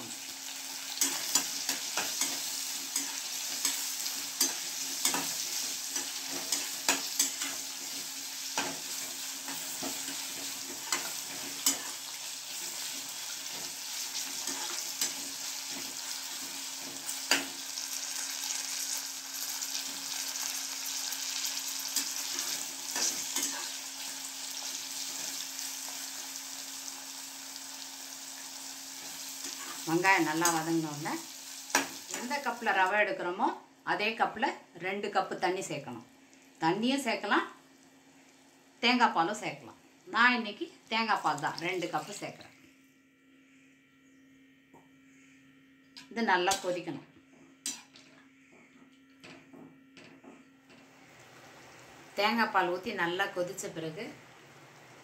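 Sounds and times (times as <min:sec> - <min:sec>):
food sizzling in hot oil: 0:00.0 - 0:33.0, 0:40.8 - 0:42.4
spatula scraping a pan: 0:00.9 - 0:17.5.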